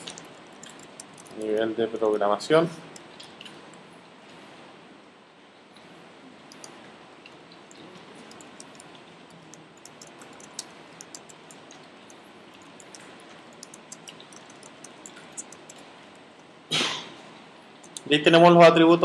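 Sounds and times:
steady background hiss: 0:00.0 - 0:19.0.

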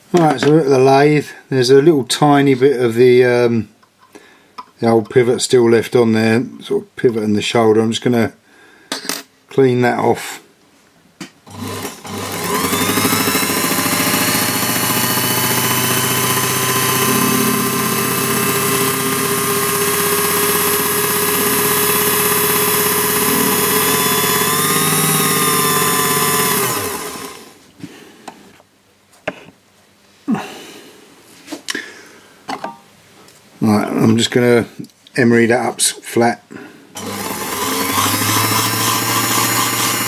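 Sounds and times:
small lathe motor whining: 0:11.5 - 0:27.5, 0:37.0 - 0:40.0.

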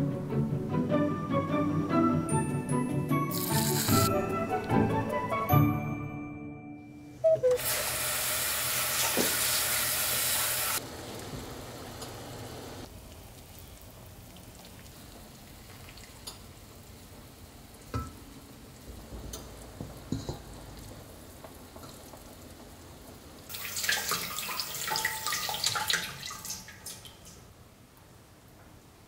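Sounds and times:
tap water running into bowl: 0:07.6 - 0:12.1, 0:23.5 - 0:27.4.

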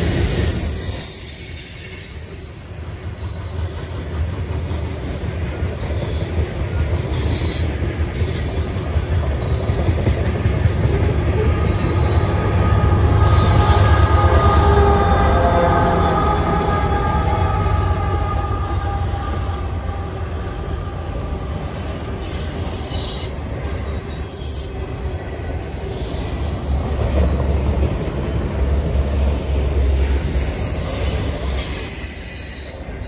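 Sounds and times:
diesel locomotive engine drone: 0:00.0 - 0:33.0
freight train wheels rumbling: 0:00.0 - 0:33.0
wheel squeals: 0:10.8 - 0:14.8, 0:21.0 - 0:24.8, 0:29.8 - 0:33.0.

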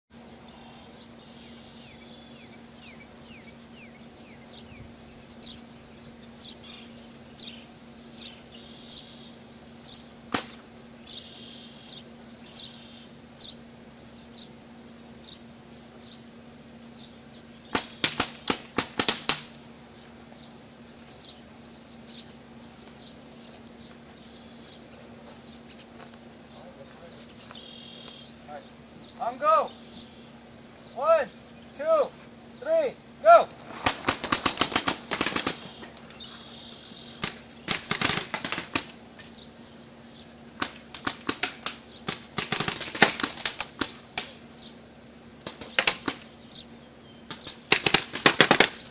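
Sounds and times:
steady low hum: 0:00.1 - 0:48.9
faint bird chirps: 0:00.4 - 0:10.1, 0:10.8 - 0:17.7, 0:19.9 - 0:32.8, 0:35.5 - 0:37.7.

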